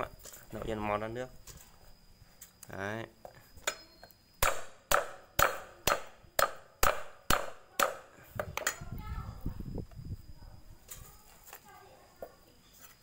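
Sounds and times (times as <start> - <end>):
machete knocking wooden block: 3.7 - 8.8.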